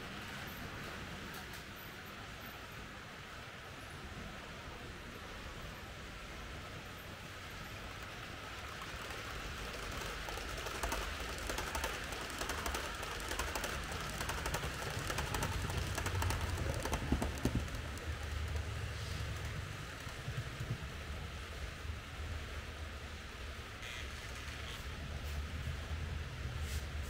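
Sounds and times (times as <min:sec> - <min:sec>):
model train rumbling on track: 0:00.0 - 0:27.0
wheels ticking on rails: 0:05.0 - 0:26.6.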